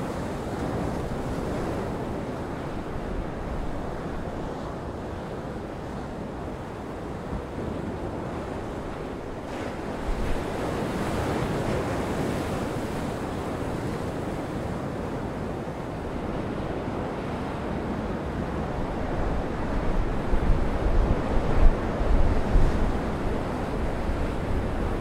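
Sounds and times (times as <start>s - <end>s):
wind buffeting microphone: 0.0s - 25.0s
heavy surf breaking over rocks: 6.4s - 25.0s.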